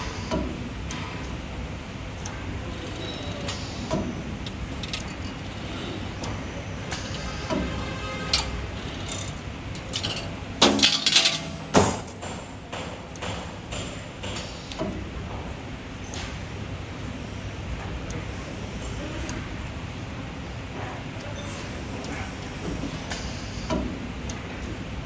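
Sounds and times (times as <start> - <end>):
wire bending machine clicks and knocks: 9.1 - 15.0.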